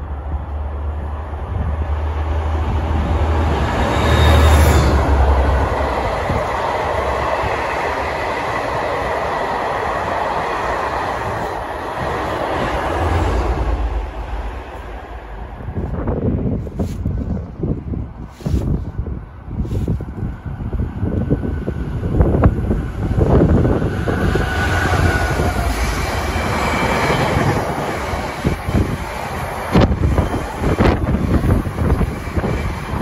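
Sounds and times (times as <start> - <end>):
passenger train passing: 0.0 - 33.0
wheels rattling on rails: 19.8 - 33.0.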